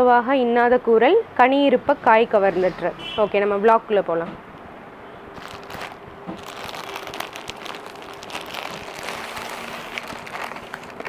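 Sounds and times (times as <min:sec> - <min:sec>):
plastic cover crinkling: 0:05.3 - 0:11.0.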